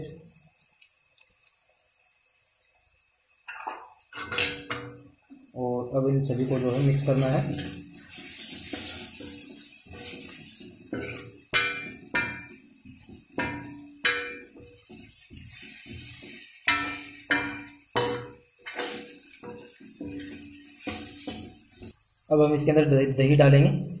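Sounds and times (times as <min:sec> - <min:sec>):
metal spoon scraping pan: 0:06.4 - 0:12.7, 0:13.4 - 0:21.9
spoon clinking on pan: 0:10.9 - 0:12.6, 0:13.4 - 0:15.0, 0:16.7 - 0:21.5.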